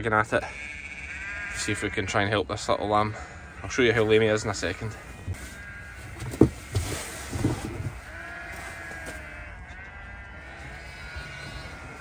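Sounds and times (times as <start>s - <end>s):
sheep bleating: 0.3s - 6.8s, 7.9s - 12.0s
knocks and thumps: 6.2s - 8.0s.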